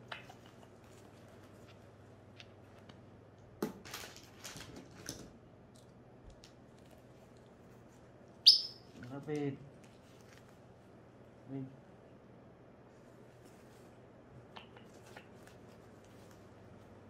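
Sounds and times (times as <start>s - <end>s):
diaper rustling and crinkling: 3.8s - 5.2s.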